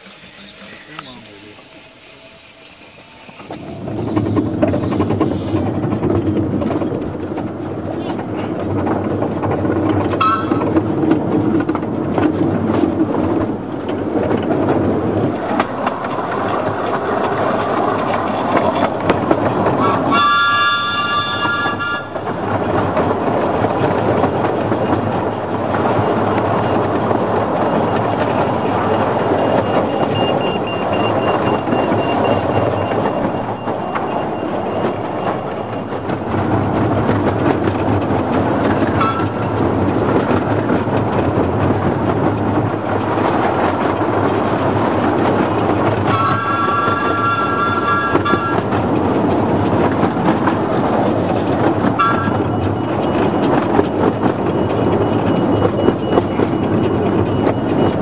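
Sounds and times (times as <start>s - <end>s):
train wheels rumbling on rail: 0.0s - 58.0s
train whistle blast: 10.2s - 10.6s, 19.8s - 22.2s, 39.0s - 39.4s, 46.1s - 48.6s, 52.0s - 52.4s.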